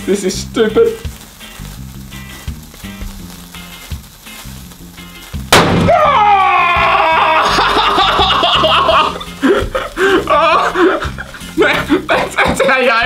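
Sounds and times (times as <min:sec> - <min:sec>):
background music: 0:00.0 - 0:13.0
sharp bang: 0:05.5 - 0:06.2
man yelling: 0:05.9 - 0:09.1, 0:10.3 - 0:10.7
laughter: 0:07.2 - 0:13.0.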